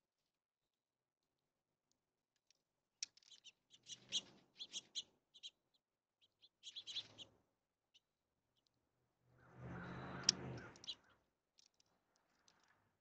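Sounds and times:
birds chirping: 3.1 - 7.3, 9.4 - 12.8.

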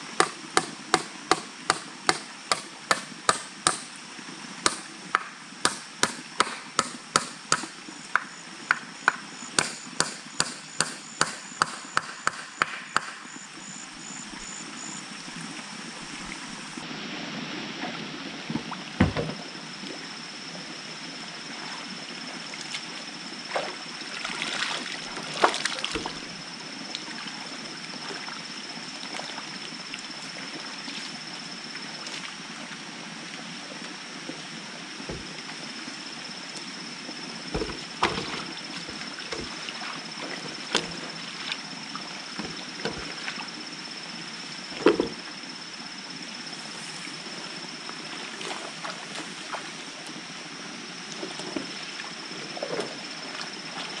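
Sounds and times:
rapid chopping strikes: 0.2 - 3.9, 4.7 - 7.8, 9.1 - 13.2
water sloshing from wading: 22.5 - 26.4, 35.1 - 35.7, 37.5 - 43.6.

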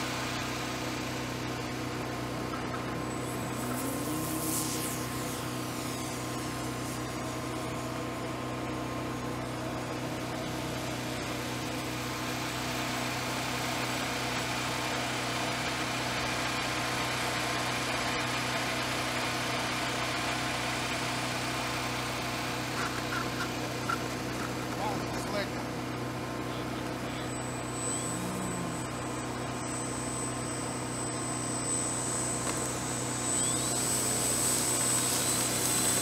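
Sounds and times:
motor humming: 0.0 - 36.0
faint rising whine: 24.8 - 36.0.

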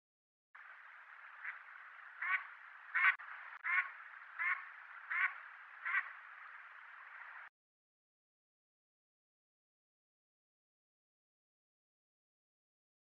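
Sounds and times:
faint steady hiss: 0.6 - 7.5
duck quacking: 1.3 - 6.2.

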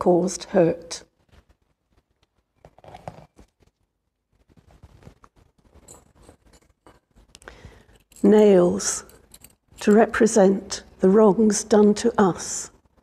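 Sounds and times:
objects handled on table: 4.4 - 8.3.

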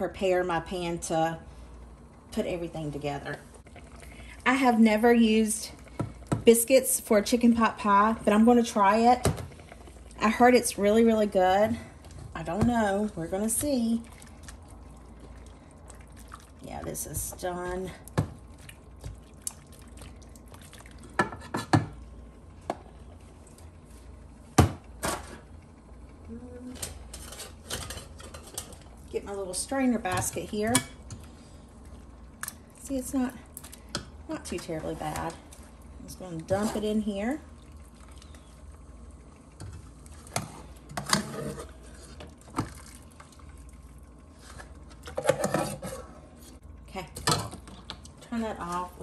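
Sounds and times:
low steady hum: 0.0 - 49.0.

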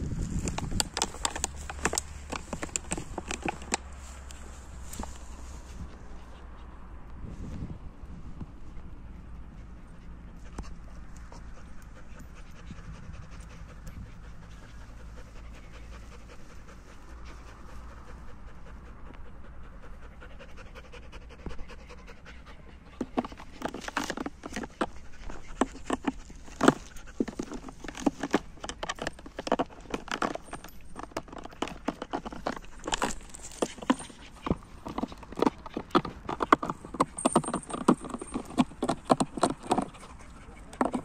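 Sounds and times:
dog chewing plastic bottle: 0.2 - 3.9, 23.0 - 37.3
dog panting: 9.2 - 41.0.

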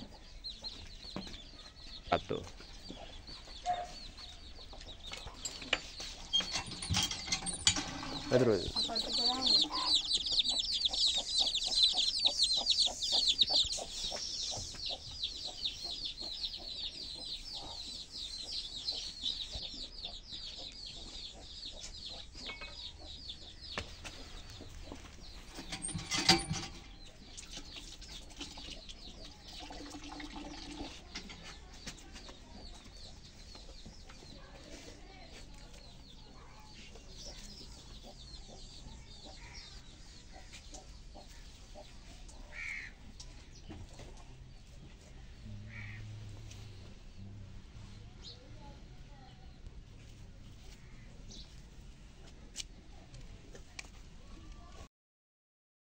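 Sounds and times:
faint bird chirping: 0.0 - 49.7
hand pump squeaking and clanking: 5.3 - 8.8, 25.5 - 27.0.

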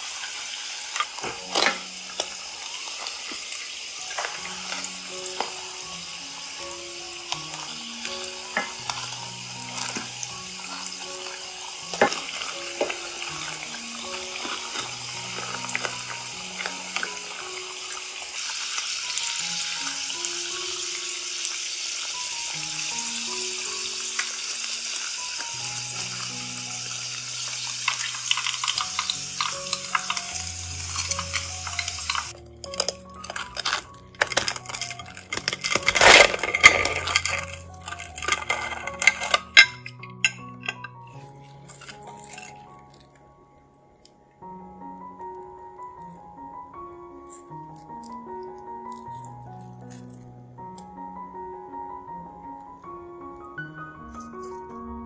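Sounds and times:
hot oil sizzling in a pan: 0.0 - 40.5
soft background music: 0.0 - 55.0
knife cutting crisp crust: 32.7 - 39.4, 41.2 - 43.1.

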